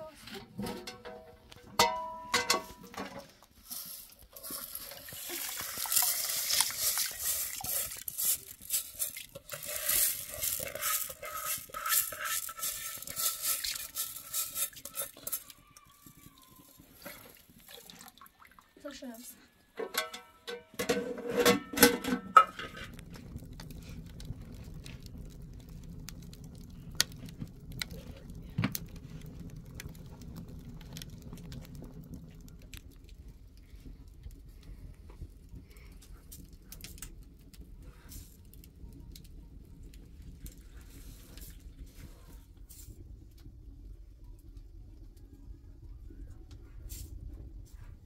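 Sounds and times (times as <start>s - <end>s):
wood fire crackling: 0.0s - 19.4s, 20.6s - 48.0s
metal pot lid clanking: 0.4s - 3.2s, 19.8s - 22.9s
low steady rumble: 22.2s - 48.0s.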